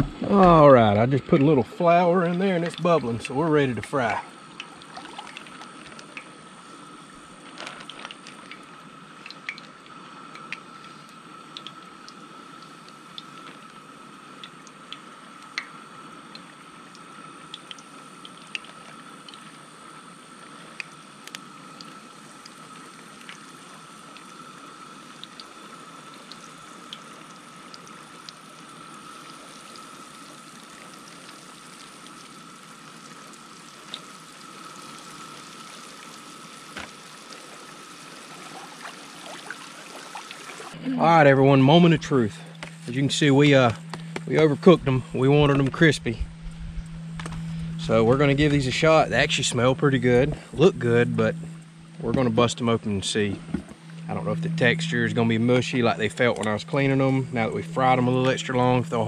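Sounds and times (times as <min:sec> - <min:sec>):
fish frying in hot oil: 0:00.3 - 0:40.8
oil pops and crackles: 0:07.4 - 0:13.8, 0:14.4 - 0:19.5, 0:36.6 - 0:37.1
steady high tone: 0:40.7 - 0:59.0.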